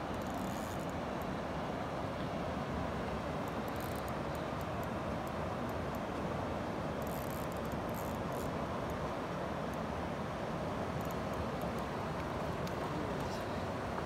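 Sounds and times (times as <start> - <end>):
water rushing through spillway: 8.6 - 14.0.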